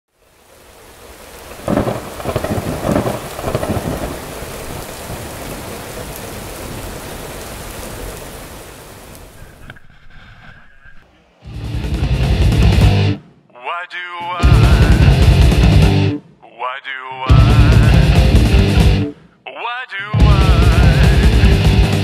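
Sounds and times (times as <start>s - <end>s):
steady rain: 0.1s - 12.9s, 14.4s - 16.0s, 17.3s - 19.1s, 20.2s - 22.0s
thunder rumbling and crackling: 0.9s - 9.2s.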